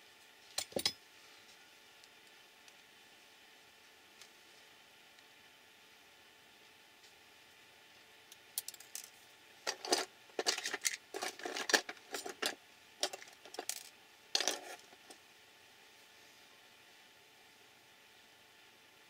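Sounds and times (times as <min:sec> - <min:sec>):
metal tools clinking in plastic tray: 0:09.7 - 0:14.8.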